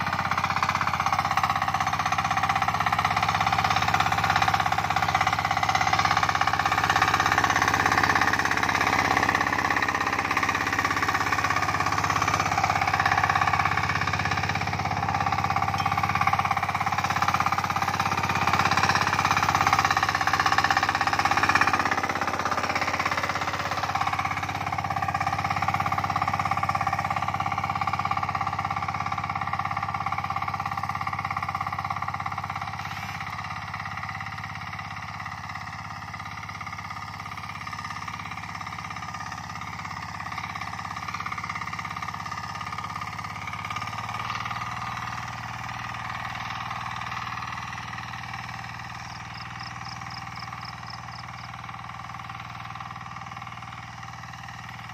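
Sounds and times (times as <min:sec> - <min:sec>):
hand tractor engine running: 0:00.0 - 0:54.9.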